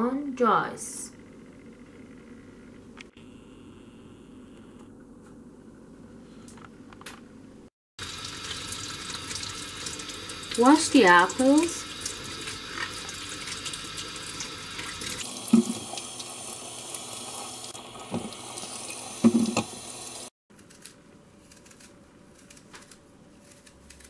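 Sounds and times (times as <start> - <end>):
tap water running into sink: 8.0 - 20.3.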